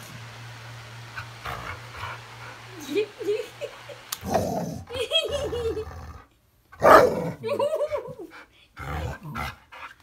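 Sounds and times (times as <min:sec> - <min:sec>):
dog barking: 0:06.8 - 0:07.3.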